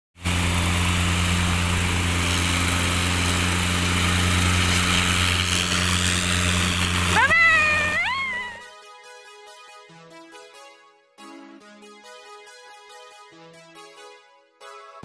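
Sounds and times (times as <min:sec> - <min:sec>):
helicopter engine and rotor drone: 0:00.2 - 0:08.4
rising wavering pitched tone: 0:07.1 - 0:08.6.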